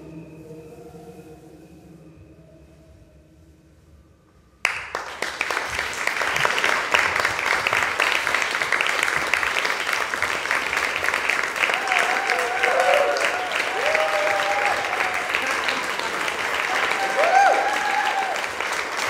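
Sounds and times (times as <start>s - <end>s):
audience applauding: 4.6s - 19.0s.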